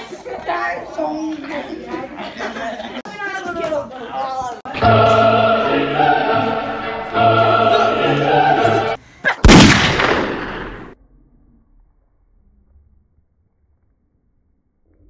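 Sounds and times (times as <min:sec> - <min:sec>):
operatic choir singing: 0:04.7 - 0:09.0
loud blast: 0:04.8 - 0:11.0.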